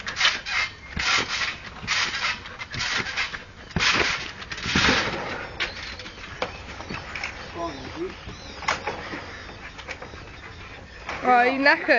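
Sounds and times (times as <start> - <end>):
trampoline mat thumping: 0.0 - 5.4
trampoline springs creaking: 0.0 - 11.9.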